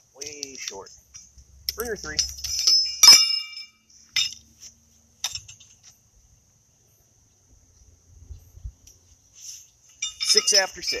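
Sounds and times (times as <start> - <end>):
insects chirring: 0.0 - 11.0
horseshoes clinking together: 0.2 - 4.5, 5.2 - 5.9, 10.0 - 11.0.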